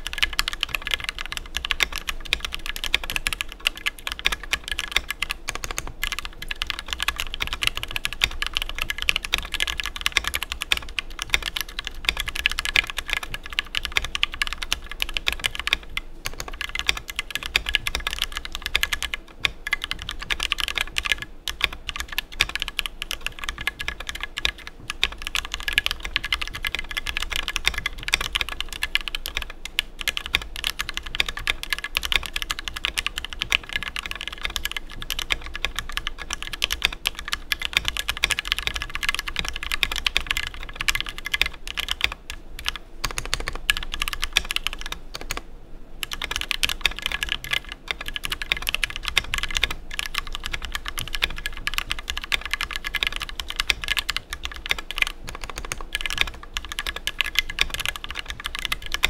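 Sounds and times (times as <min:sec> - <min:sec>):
fast mechanical keyboard typing: 0:00.0 - 0:59.0.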